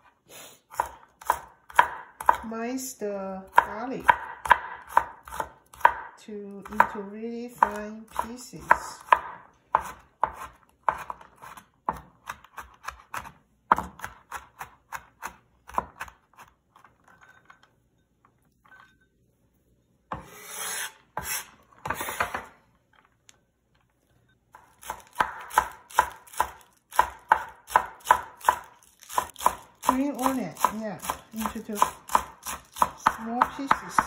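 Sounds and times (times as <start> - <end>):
cleaver chopping on wooden board: 0.8 - 2.5, 3.5 - 6.1, 7.6 - 16.2, 24.8 - 34.0
blade scraping across board: 20.2 - 22.4.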